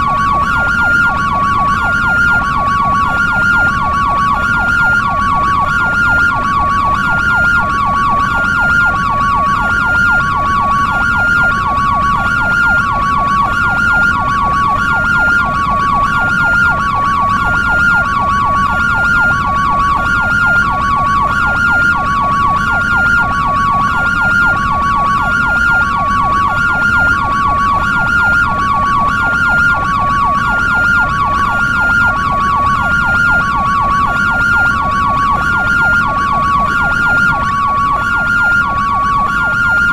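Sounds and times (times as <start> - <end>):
rapid siren yelp: 0.0 - 39.9
two-tone ambulance siren: 0.0 - 39.9.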